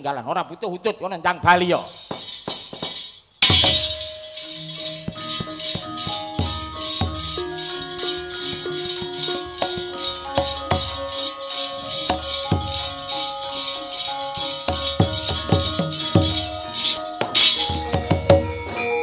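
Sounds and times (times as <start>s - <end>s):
ringing metallophone tones: 1.7s - 19.0s
fast metallic pulsing: 1.8s - 18.1s.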